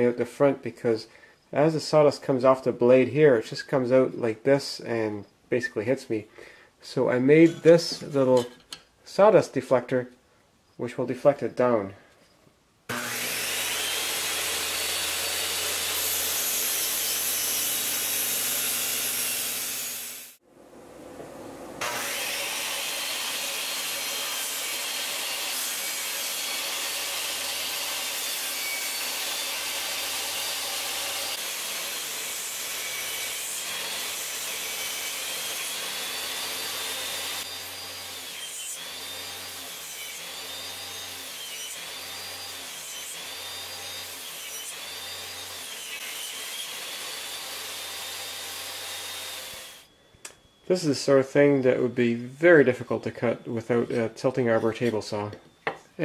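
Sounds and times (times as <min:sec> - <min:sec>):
circular saw motor running: 0:12.9 - 0:20.4
saw blade cutting wood: 0:12.9 - 0:20.4, 0:21.8 - 0:49.9.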